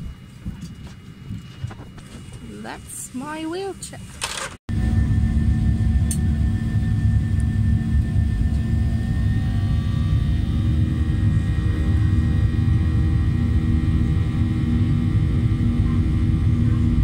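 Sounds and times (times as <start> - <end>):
engine and airflow rumble: 0.0 - 17.0
faint whining tones: 4.7 - 17.0.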